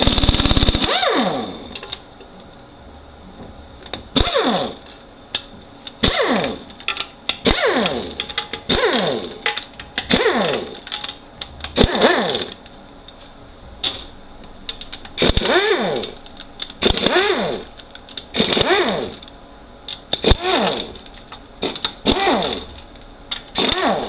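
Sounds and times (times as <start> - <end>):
impact gun bursts: 0.0 - 1.8, 4.2 - 4.8, 6.0 - 6.7, 7.4 - 10.8, 11.8 - 12.6, 15.2 - 16.2, 16.8 - 17.7, 18.3 - 19.2, 20.2 - 21.0, 21.6 - 22.8, 23.5 - 24.0.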